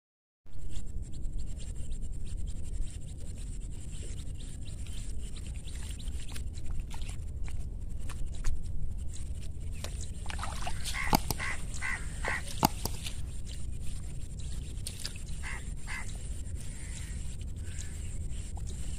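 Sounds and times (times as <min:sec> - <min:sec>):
steady low rumble: 0:00.5 - 0:18.9
small rustles and clicks: 0:02.8 - 0:15.4
duck quacking: 0:10.7 - 0:12.9, 0:15.4 - 0:16.1.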